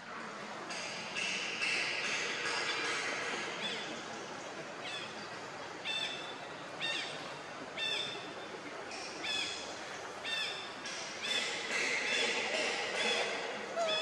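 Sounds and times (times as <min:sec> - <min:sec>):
steady background hiss: 0:00.0 - 0:14.0
bird calling: 0:12.1 - 0:14.0.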